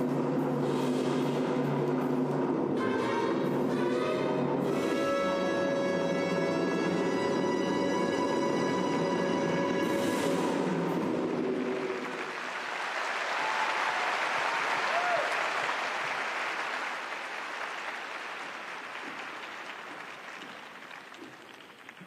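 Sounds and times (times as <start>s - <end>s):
audience applauding: 6.0s - 22.0s.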